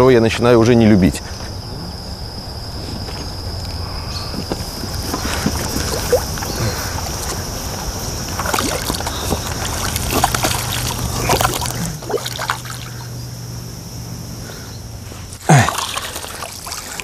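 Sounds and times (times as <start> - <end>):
fish splashing in water: 4.5 - 13.2, 15.2 - 17.0.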